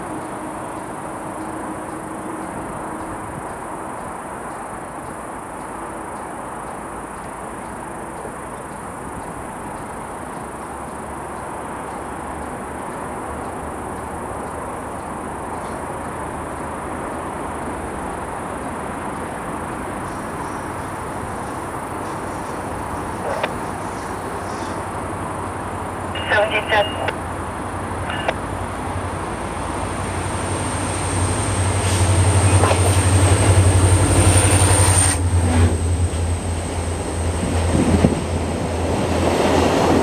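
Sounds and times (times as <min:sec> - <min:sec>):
constant even rush: 0:00.0 - 0:28.4.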